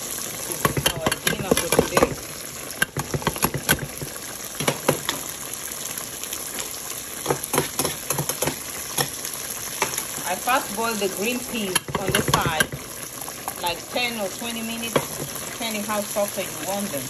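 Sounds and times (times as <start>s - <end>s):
water boiling and bubbling: 0.0s - 17.0s
pops and crackles: 0.4s - 5.3s, 6.5s - 10.3s, 11.5s - 14.0s.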